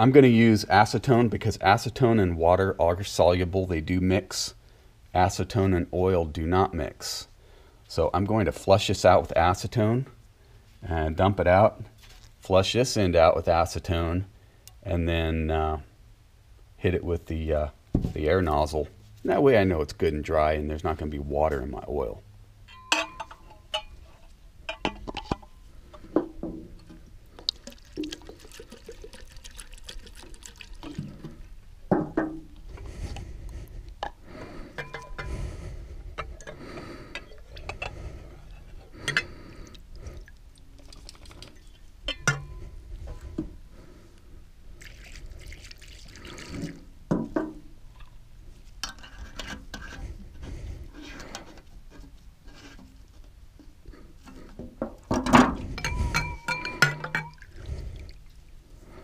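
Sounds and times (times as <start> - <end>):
metal clinks and knocks: 22.7 - 25.6, 34.0 - 35.4, 41.6 - 43.2, 54.9 - 57.4
liquid sloshing and draining: 24.7 - 31.7, 34.4 - 43.6, 44.7 - 47.0, 55.5 - 58.5.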